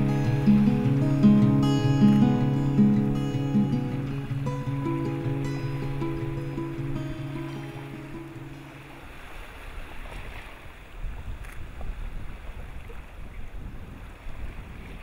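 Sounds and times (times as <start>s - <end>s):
background music: 0.0s - 8.8s
ocean surf: 0.0s - 15.0s
wind: 0.0s - 15.0s.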